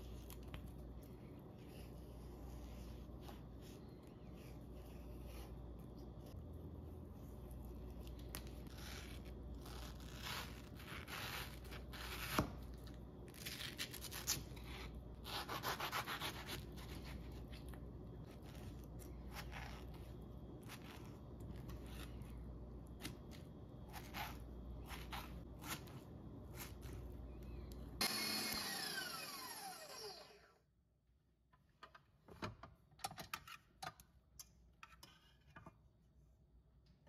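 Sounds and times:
knife scraping through fruit skin: 13.3s - 27.2s.

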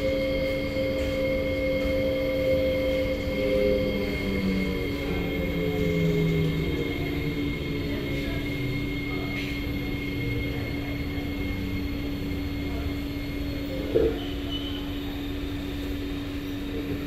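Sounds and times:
pitched whine of train equipment: 0.0s - 17.0s
train car electrical hum: 0.0s - 17.0s.

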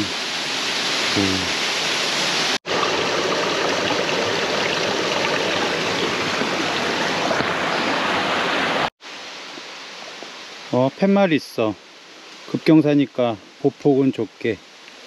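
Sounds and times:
flowing water rushing: 0.0s - 15.0s.

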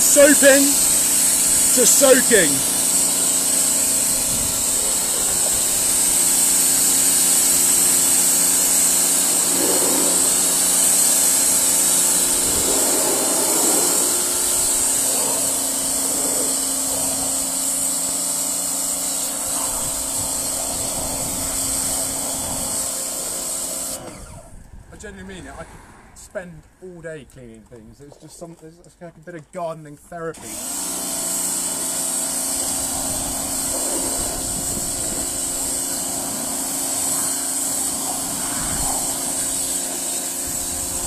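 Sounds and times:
water jet hissing: 0.0s - 24.2s, 30.4s - 41.0s
pressure washer motor hum: 0.0s - 24.5s, 30.4s - 41.0s.

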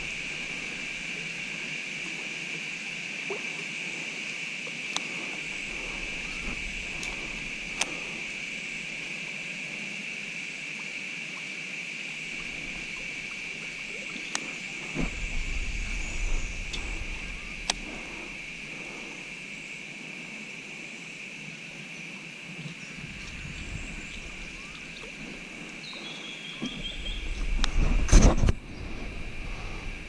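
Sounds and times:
sharp clicks: 6.9s - 8.0s, 16.6s - 18.2s
low rumble: 12.3s - 19.4s, 23.0s - 25.8s, 26.6s - 30.0s.

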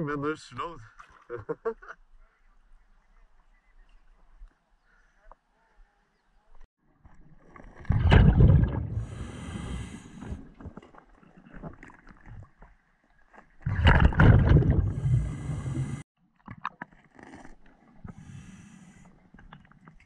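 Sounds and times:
bubbling rush of exhaled air: 7.8s - 10.8s, 13.6s - 16.0s
regulator breath hiss: 9.0s - 10.4s, 18.2s - 19.1s.

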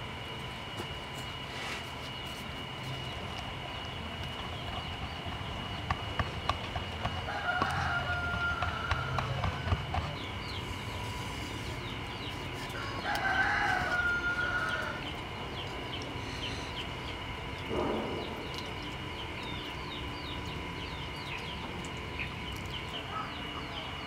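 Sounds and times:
rooster crowing: 7.2s - 10.2s, 12.7s - 15.1s.

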